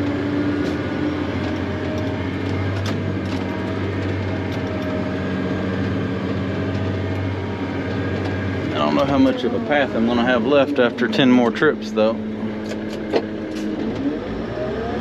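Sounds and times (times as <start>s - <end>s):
truck engine running: 0.0s - 15.0s
knocks and rattles: 0.6s - 9.3s.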